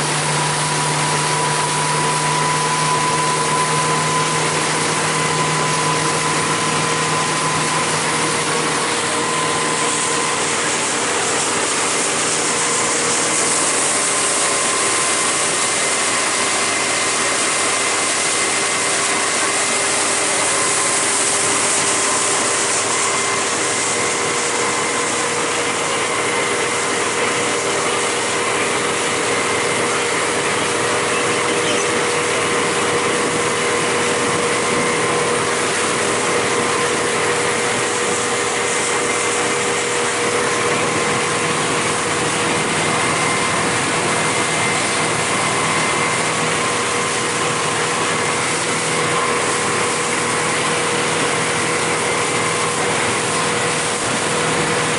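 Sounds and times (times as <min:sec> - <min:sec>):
outboard motor whining: 0:00.0 - 0:54.9
water rushing along hull: 0:00.0 - 0:54.9.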